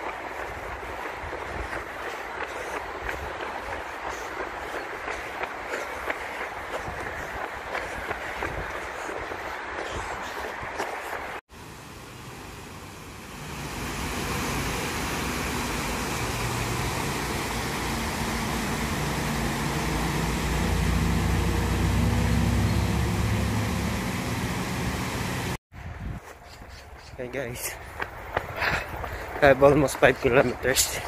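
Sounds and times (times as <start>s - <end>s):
road traffic rumbling: 11.5s - 25.6s
river water rushing over weir: 11.6s - 25.6s.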